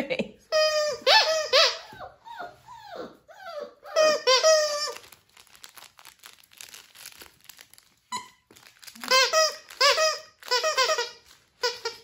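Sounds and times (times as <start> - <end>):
puppy whining: 0.6 - 5.1.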